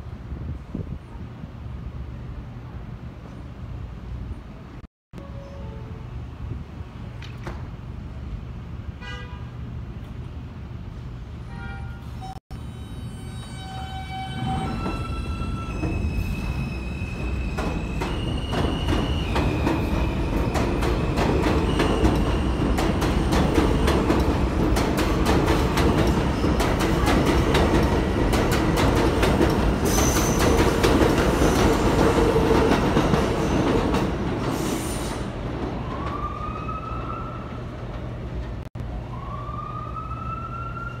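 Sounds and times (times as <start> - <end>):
train wheels clattering over rails: 17.2 - 35.2
siren rising: 39.1 - 41.0.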